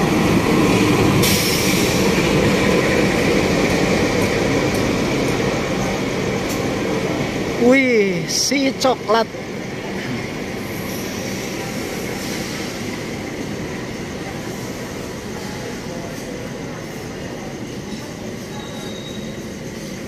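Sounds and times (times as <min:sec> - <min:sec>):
train wheels rumbling on rails: 0:00.0 - 0:20.0
high wheel squeal: 0:18.3 - 0:20.0.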